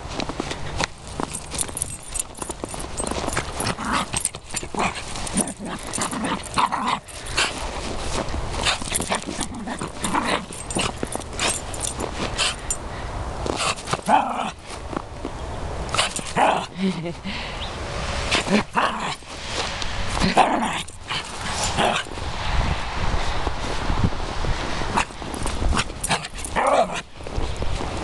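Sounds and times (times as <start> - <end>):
crunching through snow: 0.0 - 12.7.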